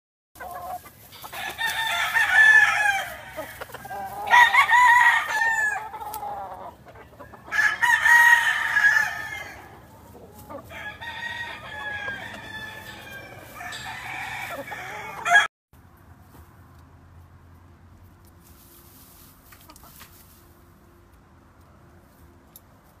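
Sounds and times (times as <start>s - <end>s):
roosters crowing: 0.4s - 15.5s.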